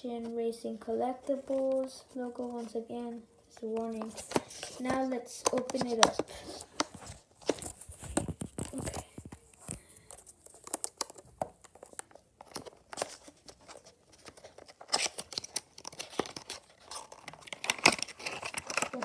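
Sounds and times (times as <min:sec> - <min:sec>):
packaging crinkling: 0:05.6 - 0:19.0.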